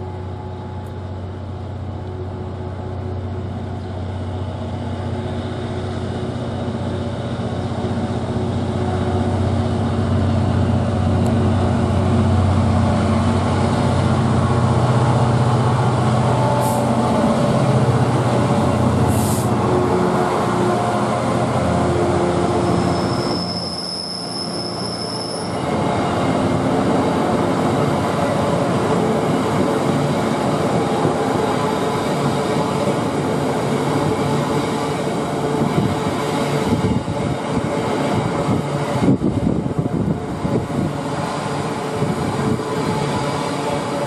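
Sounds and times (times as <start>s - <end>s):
diesel locomotive engine: 0.0s - 44.0s
high-pitched wheel squeal: 22.6s - 25.7s.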